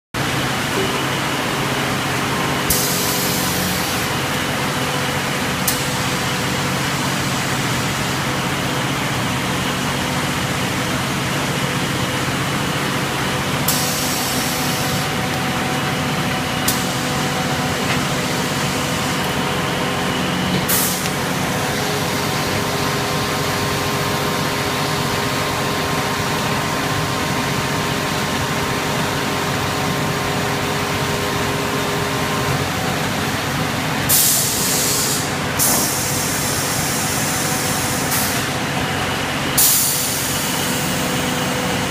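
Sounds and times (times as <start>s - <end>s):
air hiss: 34.1s - 38.5s.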